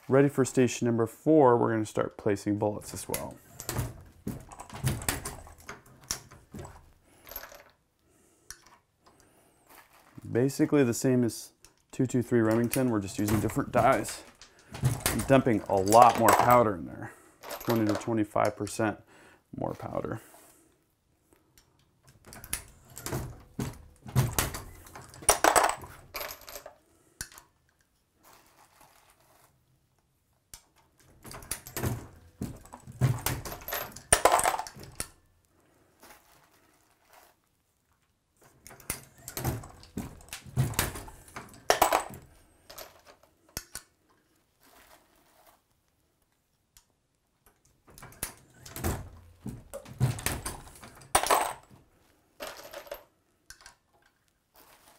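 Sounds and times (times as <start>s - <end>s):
brass cases clinking: 17.4s - 18.2s, 22.1s - 26.7s, 31.2s - 35.2s, 38.7s - 43.2s, 48.1s - 51.8s.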